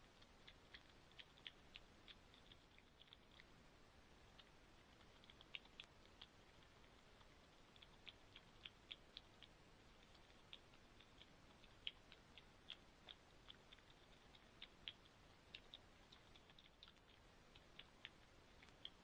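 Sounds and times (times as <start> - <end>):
faint high-pitched clicks: 4.3 - 19.0.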